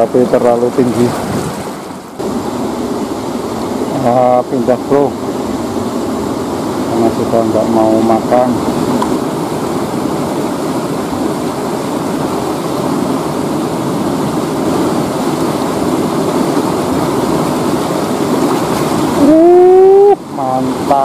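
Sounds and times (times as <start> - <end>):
river rushing over rapids: 0.0 - 21.0
man's vocal sound rising: 19.2 - 20.2.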